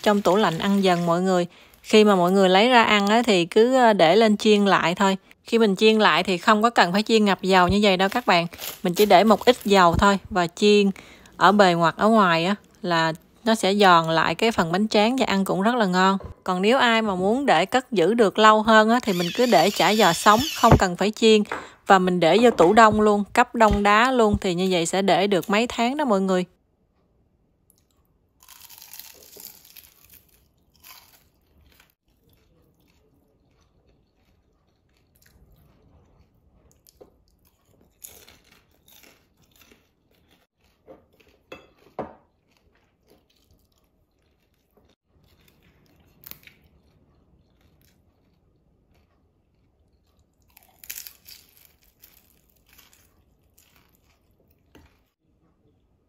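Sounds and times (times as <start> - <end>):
crunchy chewing: 27.8 - 55.2.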